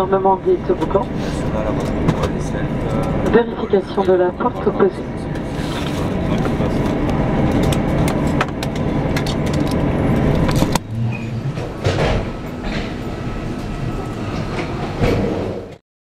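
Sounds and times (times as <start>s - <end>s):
airplane cabin rumble and hiss: 0.0s - 15.8s.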